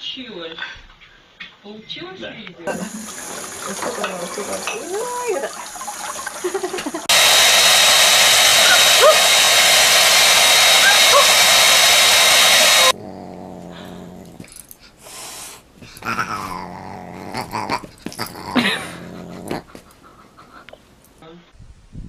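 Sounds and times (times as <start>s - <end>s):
hair dryer blowing: 2.7s - 13.0s
cat and dog crying: 15.8s - 19.8s.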